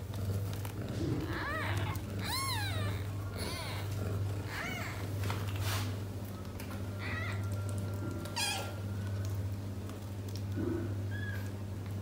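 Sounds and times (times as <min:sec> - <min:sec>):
steady low hum: 0:00.0 - 0:12.0
kittens mewing: 0:00.8 - 0:05.2.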